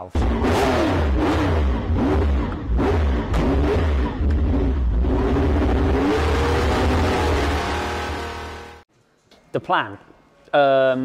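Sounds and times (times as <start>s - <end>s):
car engine revving: 0.1s - 8.8s.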